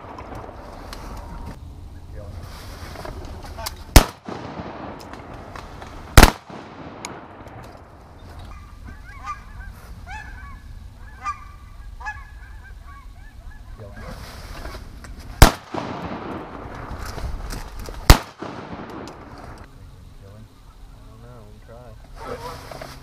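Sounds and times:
sharp loud cracks: 3.9 - 8.0, 15.4 - 19.7
geese honking: 8.5 - 14.2.

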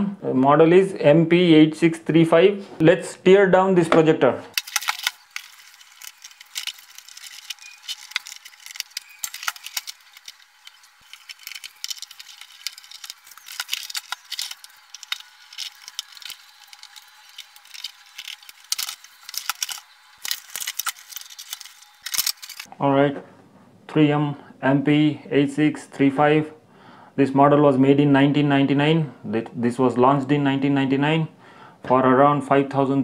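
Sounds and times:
plastic scraping: 4.6 - 22.7.

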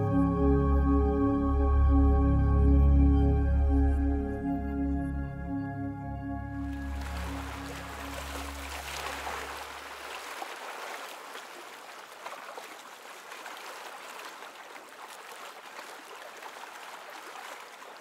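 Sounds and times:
low background music: 0.0 - 9.6
rushing water: 6.6 - 18.0.

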